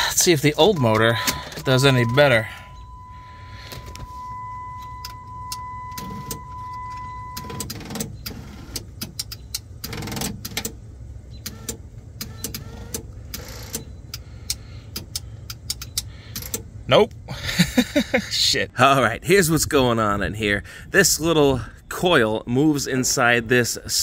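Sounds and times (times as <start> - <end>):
steady high tone: 0.0 - 7.4
sunroof motor humming: 0.0 - 14.5.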